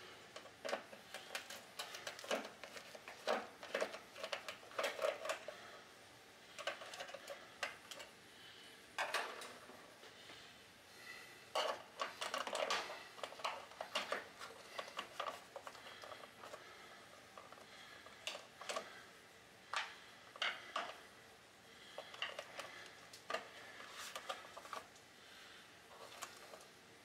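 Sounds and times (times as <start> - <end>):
clicks and rustles of wires: 0.3 - 5.8, 6.5 - 8.2, 11.5 - 19.0, 19.7 - 21.0, 21.8 - 25.1, 25.9 - 26.8.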